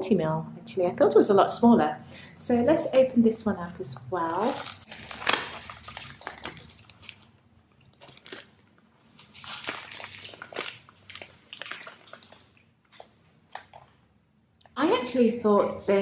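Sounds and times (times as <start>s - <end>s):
cellophane wrap crinkling: 4.2s - 13.9s.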